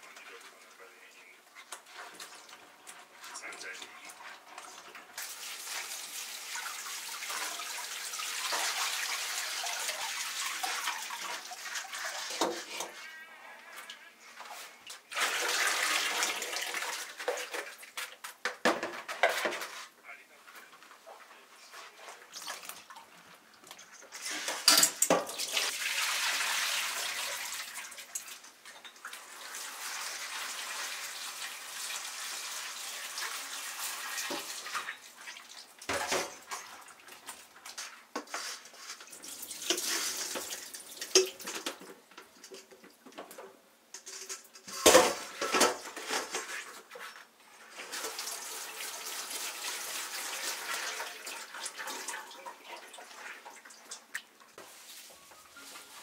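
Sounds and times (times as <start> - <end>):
water splashing in a sink: 3.3 - 12.8, 14.9 - 18.0, 22.3 - 38.0, 39.0 - 41.9, 47.8 - 54.8.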